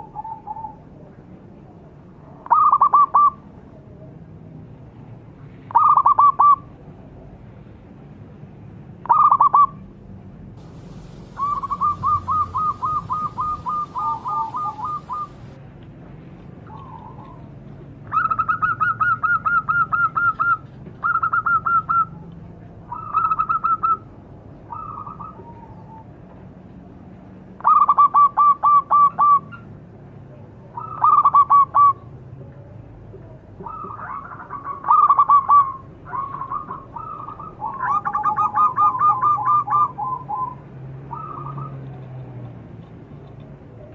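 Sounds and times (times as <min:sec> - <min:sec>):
dove cooing: 0:10.6 - 0:15.6, 0:33.6 - 0:41.8.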